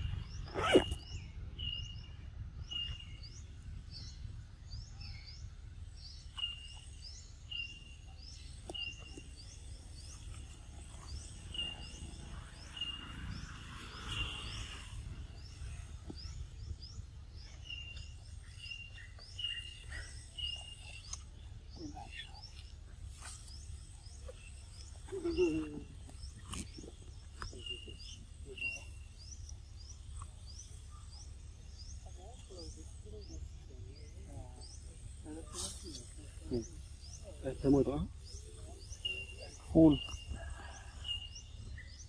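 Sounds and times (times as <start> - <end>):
quick curved bird chirps: 0.0 - 1.9
steady low background rumble: 0.0 - 42.0.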